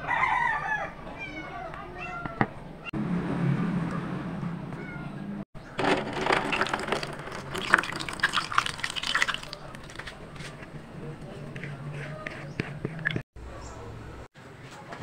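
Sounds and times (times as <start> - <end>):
thick batter pouring and glopping: 5.8 - 10.2.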